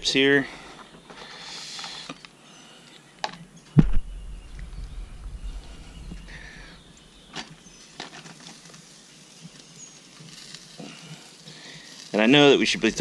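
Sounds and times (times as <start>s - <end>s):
loud thump: 3.8s - 6.4s
wood chips rustling: 5.6s - 13.0s.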